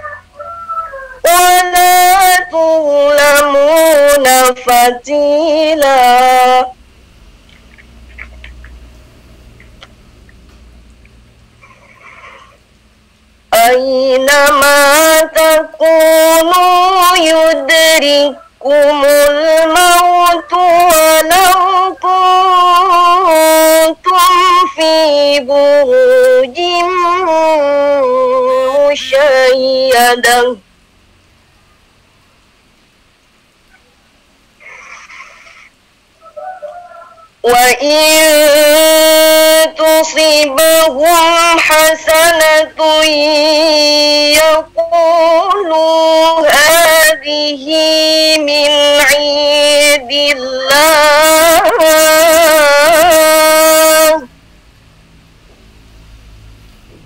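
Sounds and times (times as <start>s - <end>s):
woman chanting recitation: 1.0s - 6.8s, 13.6s - 30.6s, 37.4s - 54.3s
woman chanting: 13.6s - 30.6s.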